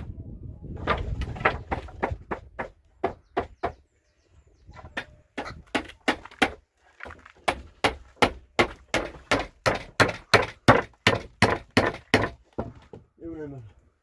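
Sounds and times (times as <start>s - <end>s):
hammer striking wooden boards: 0.8s - 3.8s, 5.0s - 13.0s.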